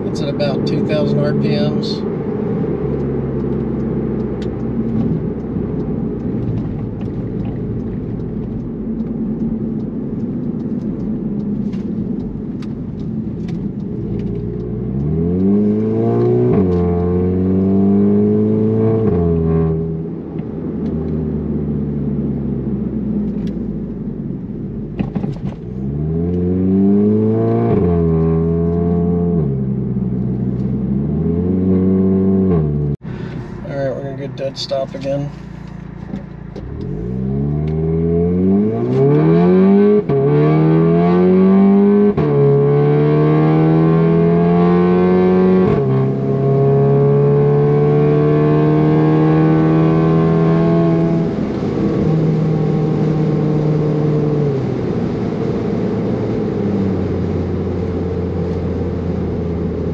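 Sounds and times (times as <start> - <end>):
car engine accelerating: 0.0 - 59.9.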